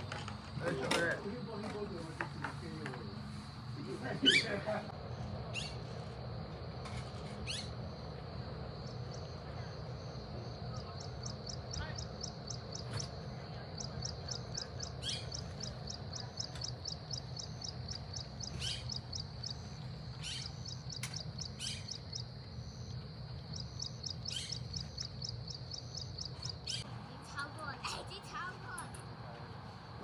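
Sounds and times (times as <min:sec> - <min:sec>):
high pulsing insect call: 0:00.0 - 0:30.0
descending bird calls: 0:04.0 - 0:04.9, 0:05.5 - 0:06.0, 0:10.7 - 0:27.4.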